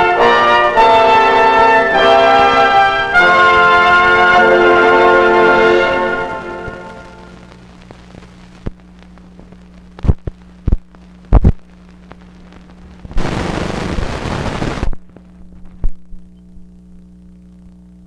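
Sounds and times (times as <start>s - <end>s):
closing music: 0.0s - 7.5s
film soundtrack hum: 0.0s - 18.0s
loud pops: 12.5s - 15.2s.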